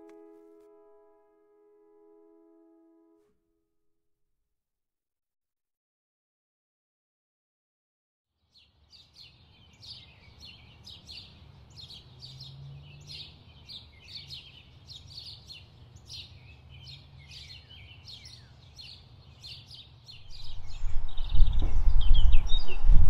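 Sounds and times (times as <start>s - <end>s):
birds chirping and twittering: 8.5s - 23.0s
low steady hum: 20.2s - 23.0s.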